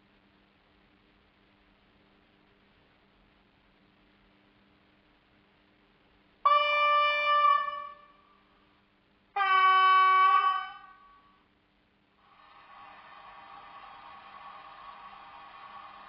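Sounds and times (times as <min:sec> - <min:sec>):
steady hiss: 0:00.0 - 0:16.0
model train horn blasts: 0:06.4 - 0:08.3, 0:09.4 - 0:11.4.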